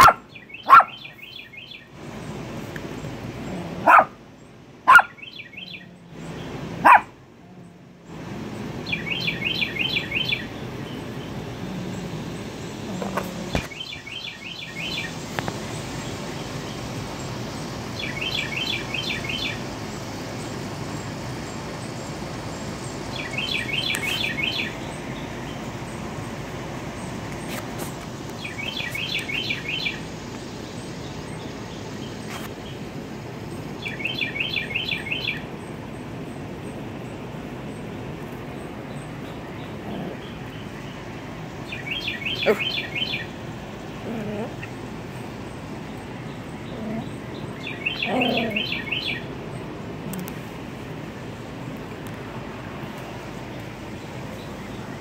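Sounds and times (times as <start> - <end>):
dog barking: 0.0 - 1.1, 3.7 - 4.2, 4.9 - 5.2, 6.8 - 7.2, 42.4 - 42.8
outdoor background noise: 0.0 - 55.0
songbird chirping: 0.0 - 55.0.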